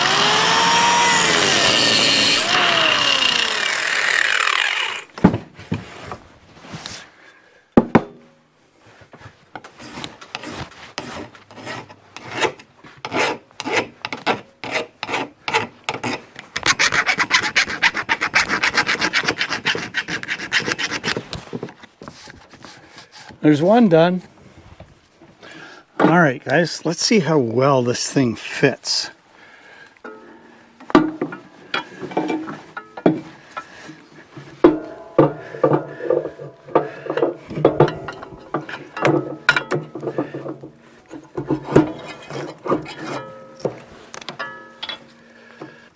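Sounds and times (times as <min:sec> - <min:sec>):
angle grinder cutting steel: 0:00.0 - 0:05.1
hand file scraping metal: 0:09.6 - 0:21.4, 0:31.8 - 0:43.7.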